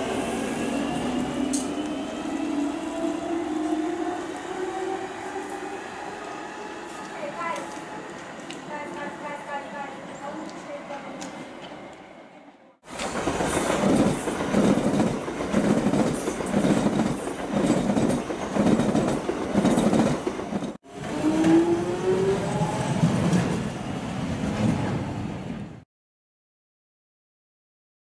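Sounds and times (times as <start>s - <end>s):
train wheels clacking over rail joints: 12.9s - 20.8s.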